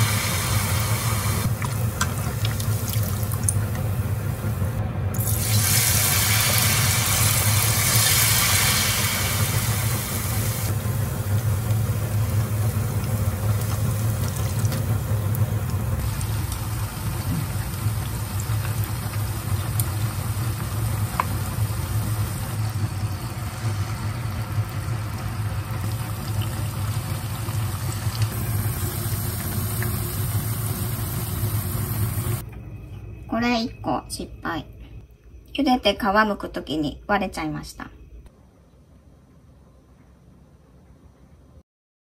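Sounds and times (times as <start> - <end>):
hot oil sizzling and bubbling: 0.0 - 32.4
steady low hum: 0.0 - 41.6.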